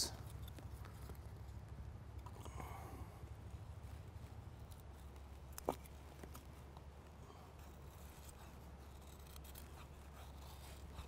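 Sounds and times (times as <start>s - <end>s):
knife scraping wood: 7.3s - 11.0s.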